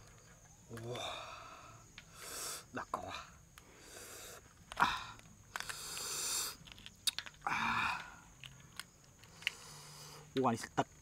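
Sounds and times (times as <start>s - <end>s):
breathy hisses and sniffs: 1.6s - 2.8s, 3.6s - 6.7s, 9.2s - 10.4s.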